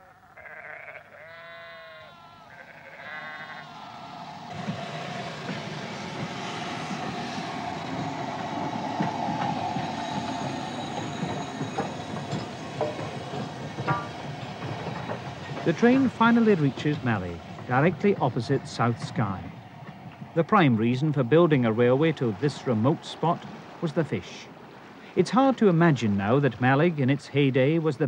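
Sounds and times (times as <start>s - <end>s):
sheep bleating: 0.0s - 4.2s
steam train passing on rails: 2.1s - 28.0s
steady high tone: 3.6s - 14.2s.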